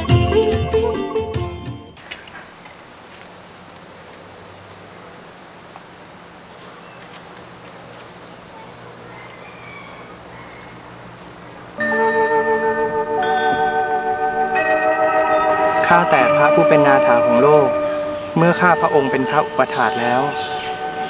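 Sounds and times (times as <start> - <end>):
insects trilling: 2.0 - 21.0
plucked string music: 11.8 - 21.0.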